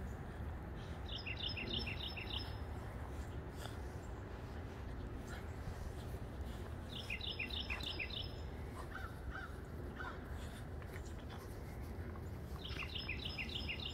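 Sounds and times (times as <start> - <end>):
steady low rumble: 0.0 - 13.9
bird calls: 0.8 - 2.6, 6.5 - 10.2, 12.5 - 13.9.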